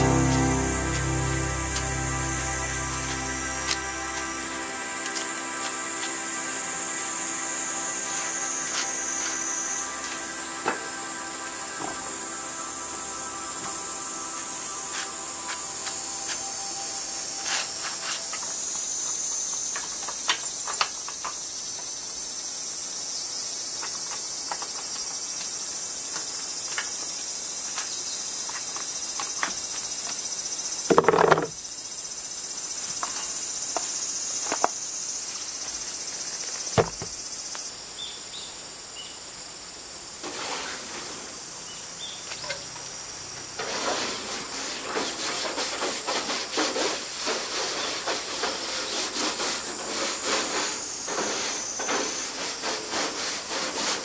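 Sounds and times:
cicadas chorus: 0.0 - 54.0
rapid scraping on metal: 43.6 - 54.0.

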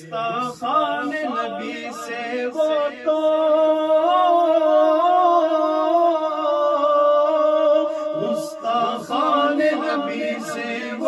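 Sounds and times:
man singing unaccompanied: 0.0 - 11.0.

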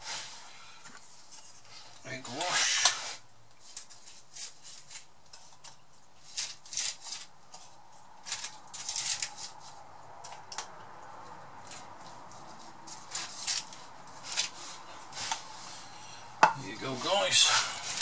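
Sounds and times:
pastry brush strokes: 11.2 - 18.0.

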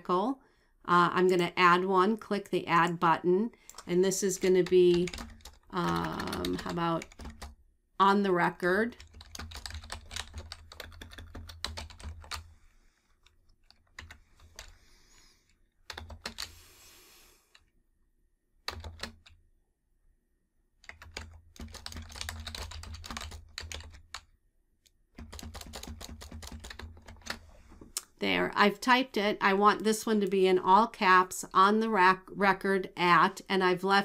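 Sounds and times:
typing on a keyboard: 3.6 - 7.6, 9.0 - 12.5, 13.2 - 14.7, 15.8 - 16.6, 18.7 - 19.4, 20.8 - 24.3, 25.2 - 27.4.

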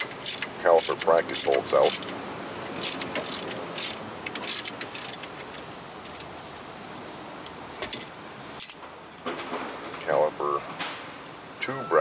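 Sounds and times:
ratchet wrench clicking: 0.0 - 2.1, 2.8 - 5.6.

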